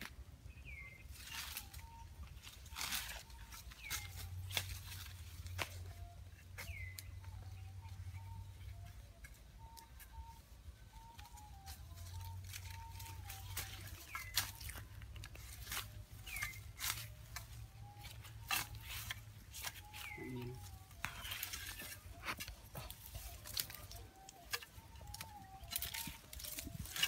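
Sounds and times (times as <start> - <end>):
hoe scraping dry ground: 12.5 - 27.0
short bird calls: 17.9 - 27.0.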